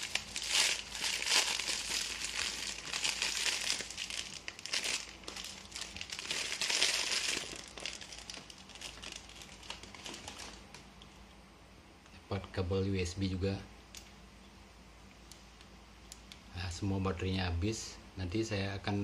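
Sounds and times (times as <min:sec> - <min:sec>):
plastic bag crinkling: 0:00.0 - 0:10.8.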